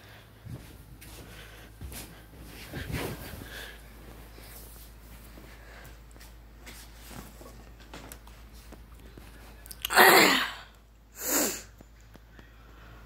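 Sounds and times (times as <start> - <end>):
person sneezing: 9.9 - 11.7.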